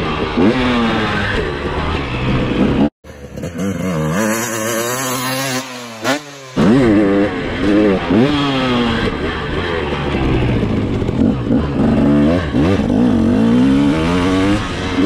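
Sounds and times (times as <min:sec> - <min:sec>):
distant bike engine: 0:00.0 - 0:15.0
motocross bike engine revving: 0:00.0 - 0:15.0.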